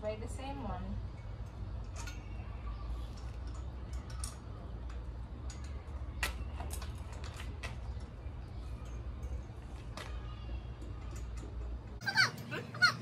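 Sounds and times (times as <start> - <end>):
metallic clicks of wire on fence: 1.2 - 8.2.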